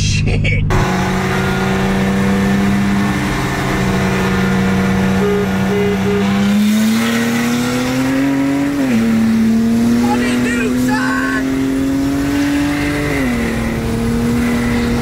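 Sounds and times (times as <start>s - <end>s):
car engine revving: 0.7s - 15.0s.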